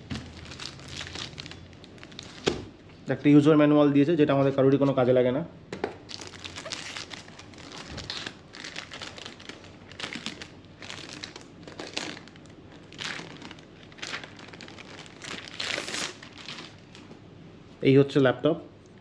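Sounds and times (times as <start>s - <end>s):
packaging crinkling and rustling: 0.0s - 2.8s, 6.0s - 17.2s.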